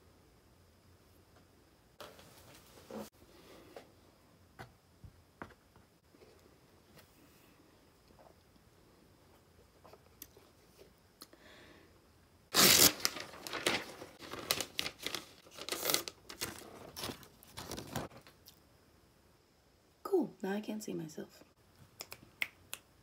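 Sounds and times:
paper crinkling and rustling: 12.6s - 18.4s.

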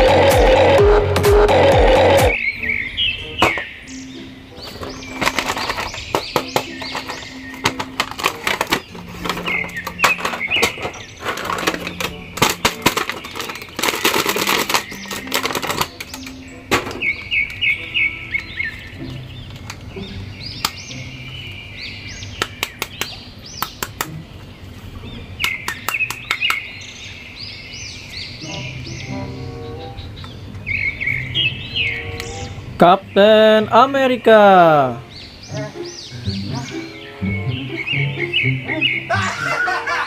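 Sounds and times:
bird-like chirping: 2.0s - 40.0s
plastic packaging crinkling: 7.0s - 16.3s.

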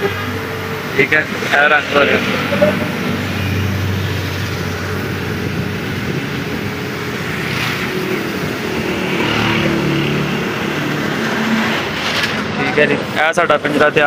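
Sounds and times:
low hum: 0.2s - 5.3s.

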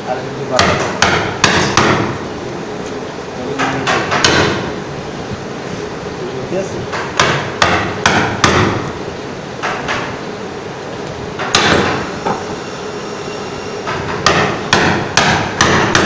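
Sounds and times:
mallet knocking on chisel handle: 3.6s - 4.7s, 14.2s - 16.0s.

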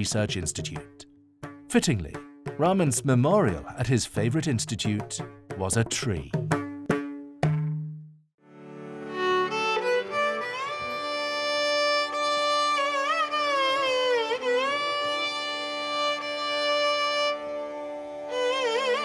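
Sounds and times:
solo violin slow melody: 8.5s - 19.0s.

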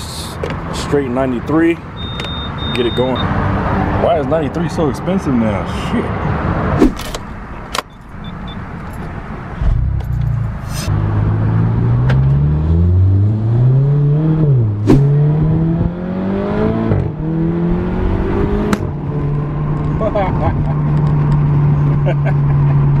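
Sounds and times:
car engine accelerating through gears: 9.6s - 23.0s.

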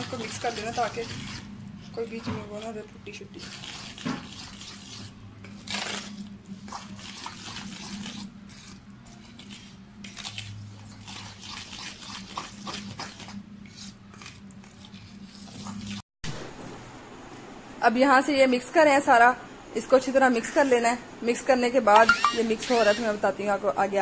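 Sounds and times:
batter squelching in bowl: 0.0s - 16.0s.

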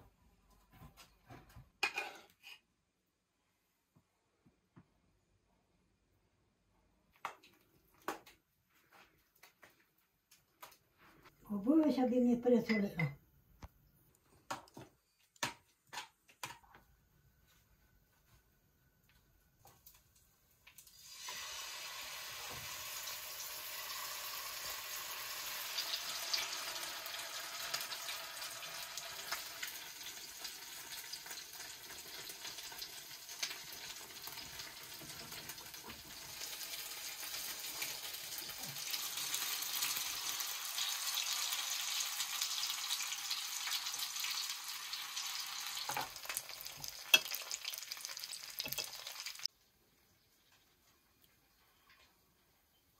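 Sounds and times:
pancakes sizzling in oil: 19.6s - 49.5s.

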